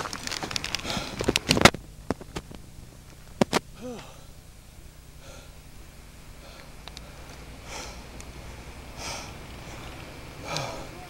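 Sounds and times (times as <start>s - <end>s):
person breathing heavily: 0.7s - 1.4s, 3.7s - 11.0s.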